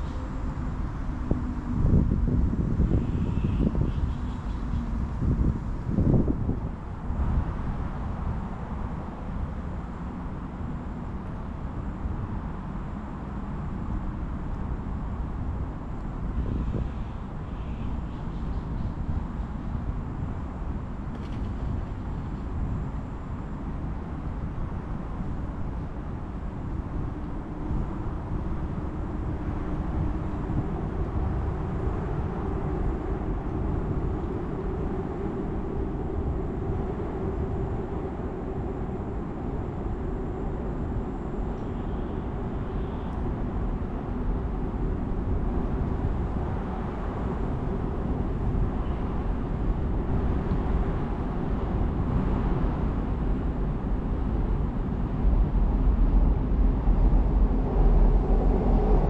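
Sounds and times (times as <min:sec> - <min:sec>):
train rumbling over bridge: 0:15.1 - 0:59.0.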